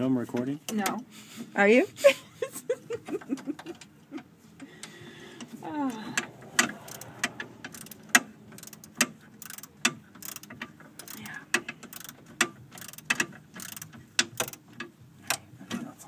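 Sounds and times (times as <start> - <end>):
ratchet wrench clicking: 6.2 - 15.4.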